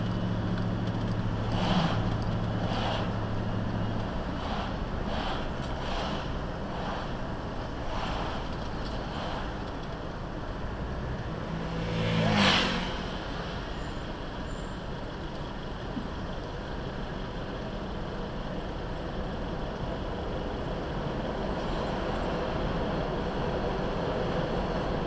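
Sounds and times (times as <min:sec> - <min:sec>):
city traffic noise: 0:00.0 - 0:25.0
vehicle passing close whoosh: 0:01.1 - 0:10.0, 0:10.6 - 0:14.2.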